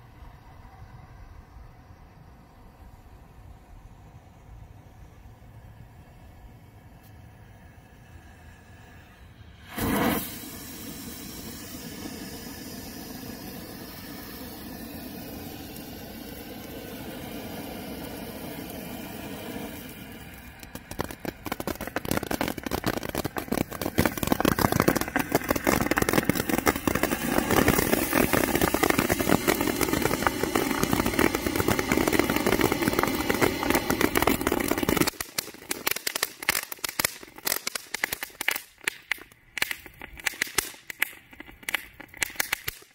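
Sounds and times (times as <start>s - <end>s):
firework fuse hissing: 6.9s - 42.9s
firework burst: 7.5s - 42.9s
firework sparks crackling: 9.4s - 42.9s.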